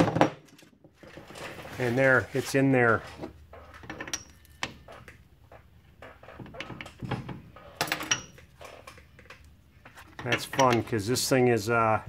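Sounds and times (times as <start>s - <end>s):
metal parts clicking and knocking: 3.7s - 5.2s, 6.0s - 11.0s.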